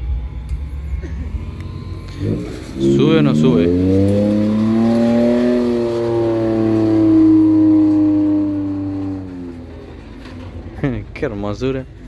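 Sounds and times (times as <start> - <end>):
pickup engine revving hard: 1.8 - 9.9.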